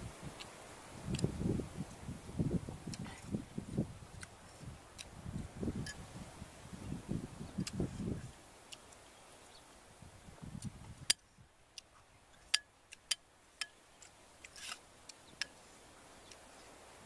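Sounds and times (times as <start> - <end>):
soft chewing: 2.8 - 3.4, 4.1 - 5.5.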